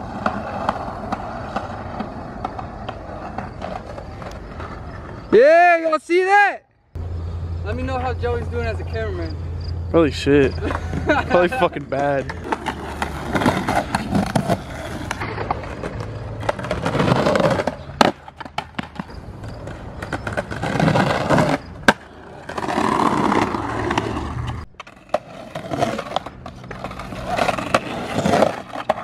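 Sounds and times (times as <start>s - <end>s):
skateboard clacks: 0.0s - 5.2s, 12.0s - 29.0s
skateboard wheels rolling on concrete: 0.0s - 29.0s.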